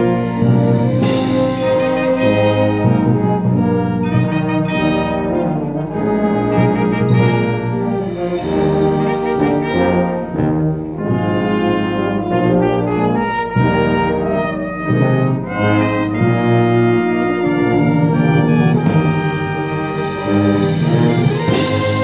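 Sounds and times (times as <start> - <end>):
concert wind band playing: 0.0 - 22.0
trombones and trumpets chords: 0.0 - 22.0.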